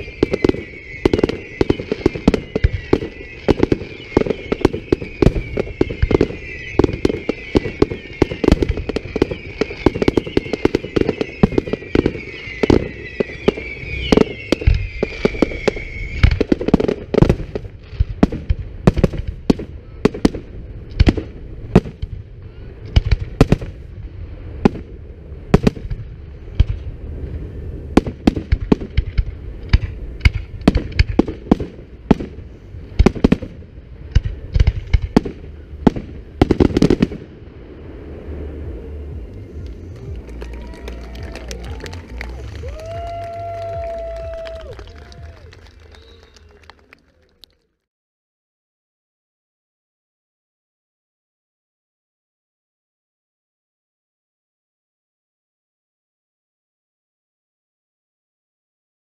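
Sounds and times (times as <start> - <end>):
firework whistles falling in pitch: 0.0 - 17.1, 39.2 - 47.3
firework bangs: 0.0 - 47.4.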